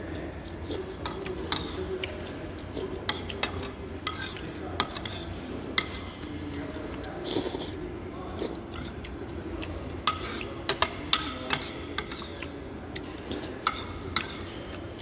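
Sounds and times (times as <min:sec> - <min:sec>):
spoon clinking against bowl: 0:03.0 - 0:06.3, 0:10.0 - 0:15.0.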